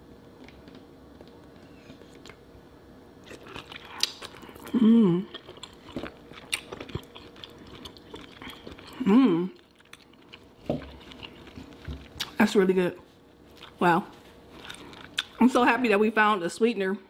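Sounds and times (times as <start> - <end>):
person chewing wetly: 3.2 - 12.4, 13.4 - 13.8, 14.5 - 15.4
person humming mmm: 4.6 - 5.4, 8.9 - 9.6.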